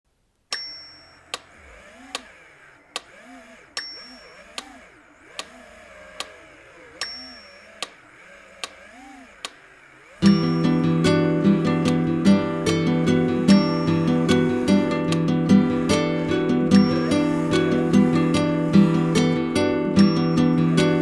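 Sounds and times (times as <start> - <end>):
short high ding: 0.5 - 1.3, 7.0 - 7.7, 10.2 - 10.9
clock-like ticking: 10.2 - 21.0
loud guitar music: 10.2 - 21.0
soft wavering low tone: 10.2 - 21.0.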